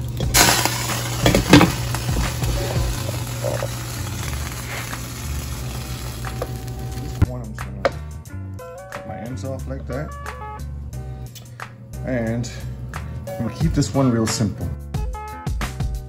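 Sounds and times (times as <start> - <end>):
water hissing and bubbling in pan: 0.0 - 7.2.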